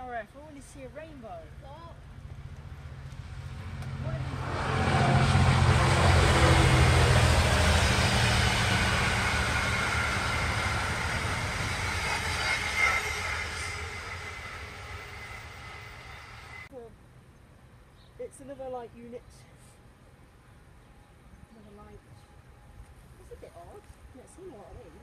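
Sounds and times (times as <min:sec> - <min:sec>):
wheel and rail noise: 0:00.0 - 0:16.7
diesel engine drone: 0:01.5 - 0:16.7.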